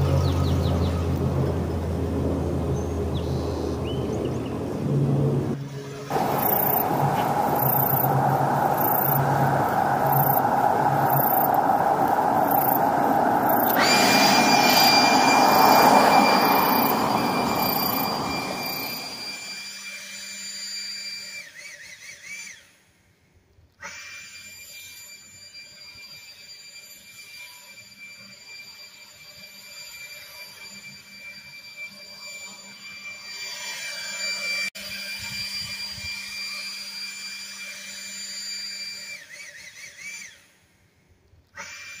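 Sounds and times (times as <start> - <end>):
leaf blower motor whine: 4.7 - 22.6
rush of air: 5.0 - 19.6.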